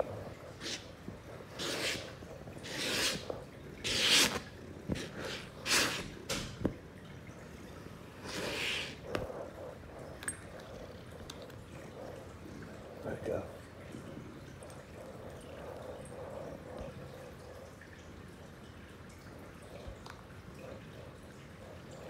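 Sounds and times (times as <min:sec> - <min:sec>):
brush swishing through fur: 0:01.6 - 0:06.2.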